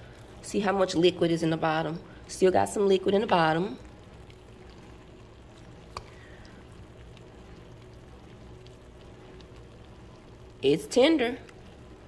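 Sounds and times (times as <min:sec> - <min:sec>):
fork crackling through wet meat: 0:05.4 - 0:09.7.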